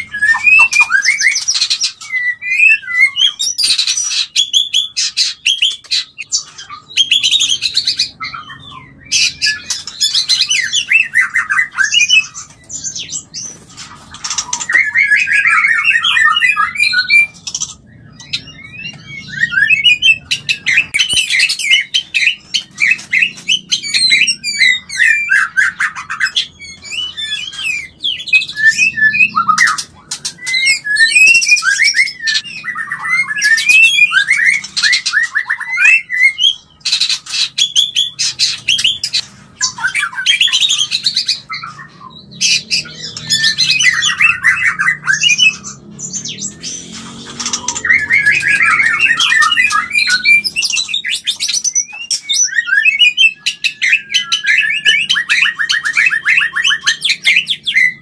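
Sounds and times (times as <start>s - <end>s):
bird singing whistles and trills: 0.0s - 58.0s.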